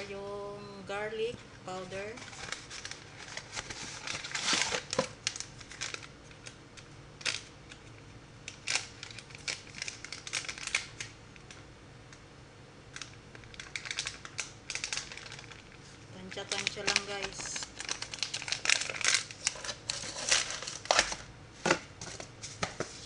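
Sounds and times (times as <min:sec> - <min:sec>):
food packaging crinkling: 0:02.2 - 0:06.6, 0:07.2 - 0:11.6, 0:12.9 - 0:21.3.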